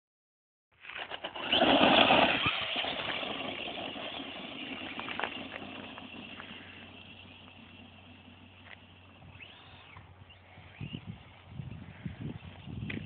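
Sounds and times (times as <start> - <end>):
tyres on loose dirt: 0.7 - 13.0
radio-controlled car motor: 1.2 - 13.0.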